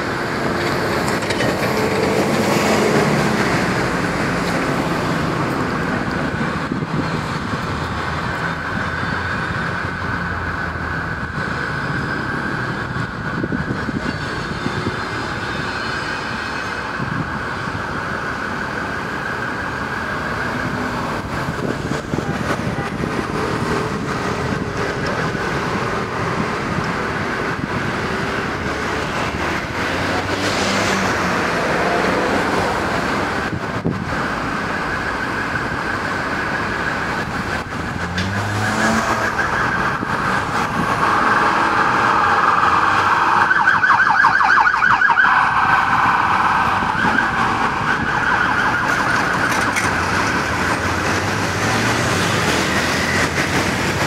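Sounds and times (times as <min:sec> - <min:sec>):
emergency vehicle siren: 0:00.0 - 0:54.0
street traffic: 0:00.0 - 0:54.0.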